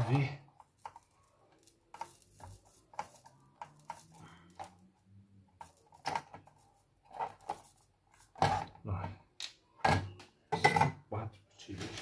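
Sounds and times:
tools clicking and tapping: 0.5 - 4.9.

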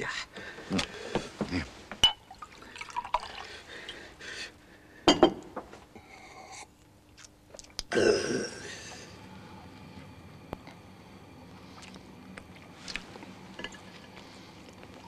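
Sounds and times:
person sipping: 11.5 - 15.0.

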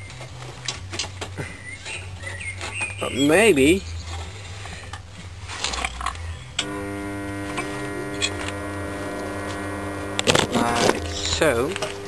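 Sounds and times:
low background hum: 3.8 - 12.0
electric buzz: 6.6 - 12.0.

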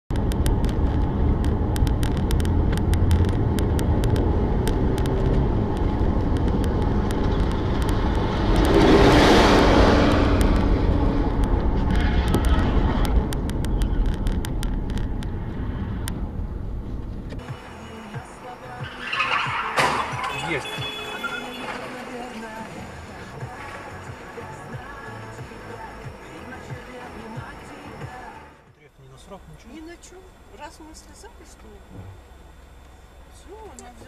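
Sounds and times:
truck passing close: 0.1 - 24.0
car interior road rumble: 0.1 - 34.0
small ticks: 1.4 - 8.8.

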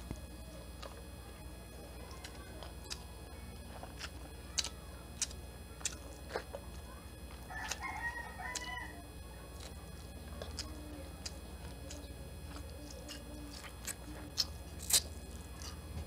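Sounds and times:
wet eating clicks and lip smacks: 2.1 - 3.1, 3.9 - 6.6, 9.5 - 15.8
rooster crowing: 7.5 - 9.2.

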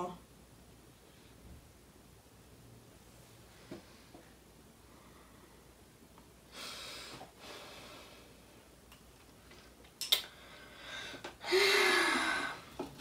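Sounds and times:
person exhaling through nose: 10.4 - 12.7.

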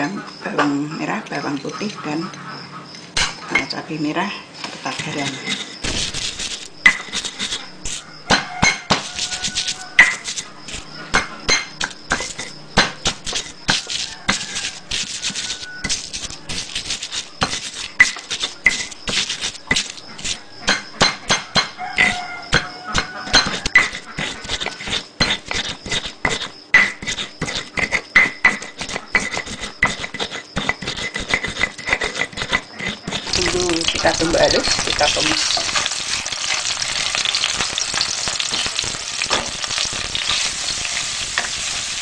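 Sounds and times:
stone pestle pounding in mortar: 5.8 - 10.4, 11.1 - 35.8.

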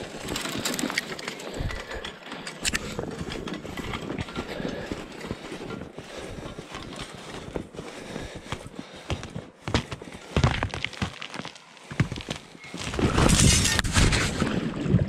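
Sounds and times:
footsteps crunching through snow: 2.8 - 14.4.

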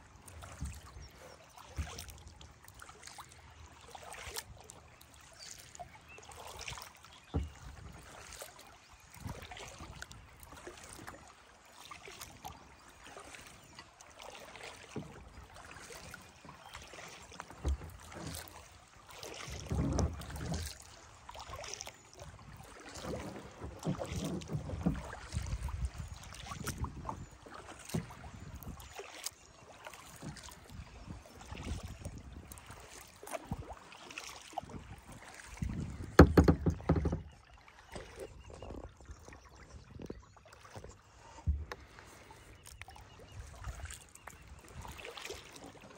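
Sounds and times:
paddle splashes and drips: 0.0 - 45.9
light knocks and clicks: 36.2 - 37.3.

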